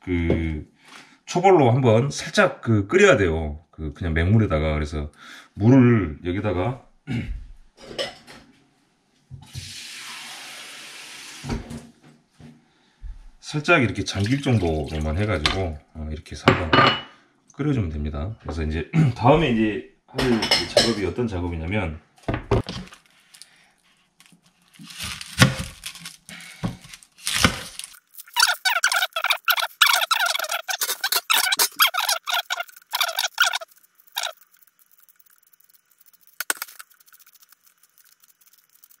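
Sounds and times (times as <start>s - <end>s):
onion skin crackling and tearing: 22.7s - 39.0s
knife scraping: 26.8s - 39.0s
fast high chattering: 28.3s - 39.0s.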